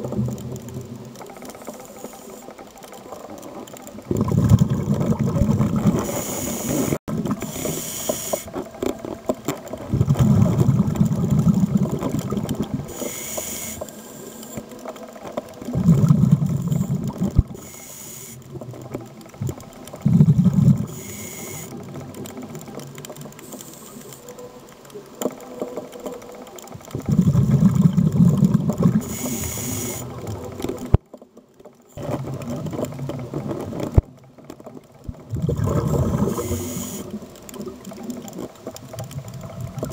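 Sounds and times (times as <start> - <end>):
bubbling exhales: 4.0 - 8.6, 9.8 - 13.8, 15.7 - 17.7, 19.4 - 22.6, 26.9 - 31.0, 35.1 - 39.9
diver breathing through regulator: 5.9 - 8.6, 12.9 - 14.6, 28.9 - 30.1.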